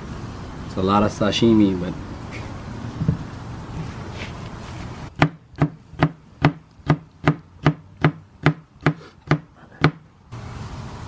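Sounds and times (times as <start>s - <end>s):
knife chopping on cutting board: 5.2s - 10.0s.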